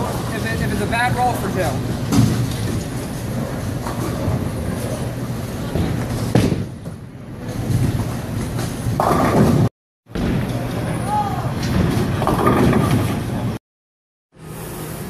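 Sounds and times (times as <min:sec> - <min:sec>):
bowling alley rumble: 0:00.0 - 0:13.6
bowling ball thudding and rolling: 0:01.9 - 0:11.0, 0:11.6 - 0:13.6.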